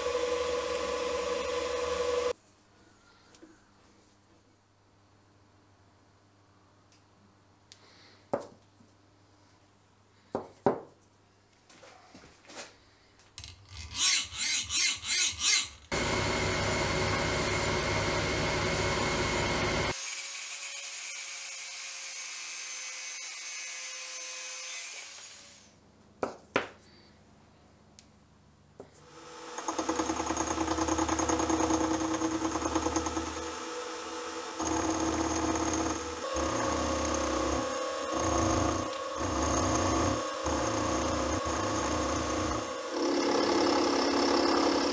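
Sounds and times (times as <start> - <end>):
milling machine cutting metal: 0.0 - 2.3, 16.0 - 19.9, 29.2 - 44.9
angle grinder cutting metal: 29.2 - 44.9.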